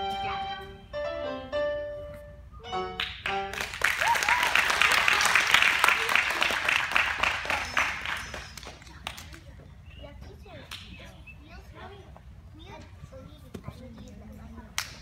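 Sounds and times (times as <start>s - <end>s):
instrumental music: 0.0s - 3.7s
small group applauding: 3.0s - 9.5s.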